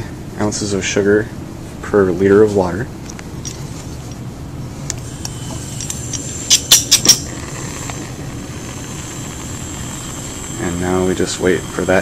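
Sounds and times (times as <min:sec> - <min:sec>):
gas hissing through hose: 0:05.0 - 0:12.0.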